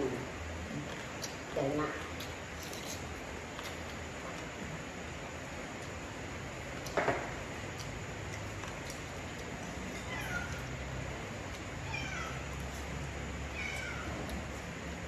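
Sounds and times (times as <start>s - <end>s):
cat meowing: 10.0s - 10.7s, 11.8s - 12.6s, 13.5s - 14.3s.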